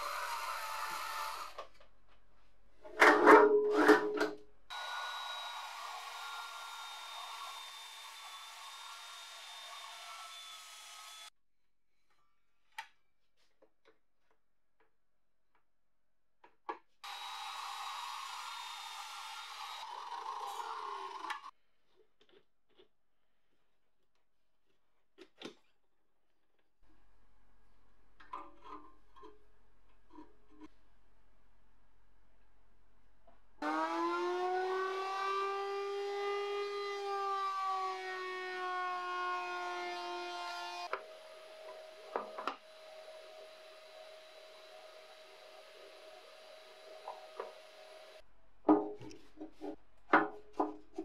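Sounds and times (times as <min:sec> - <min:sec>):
mitre saw cutting wood: 0:00.0 - 0:01.7, 0:04.7 - 0:11.3, 0:17.0 - 0:21.5, 0:33.6 - 0:48.2
power sander motor whining: 0:04.7 - 0:11.3, 0:33.6 - 0:48.2.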